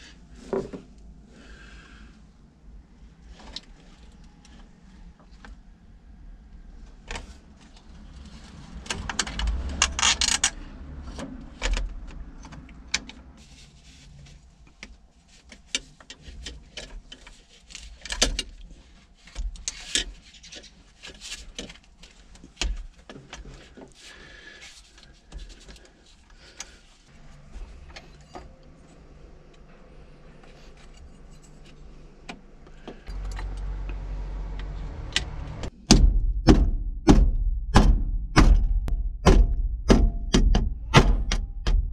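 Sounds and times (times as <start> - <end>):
metal parts scraping and clicking: 8.1 - 10.7, 27.3 - 32.0
low rumble: 27.1 - 41.9
heavy knock: 35.8 - 41.9.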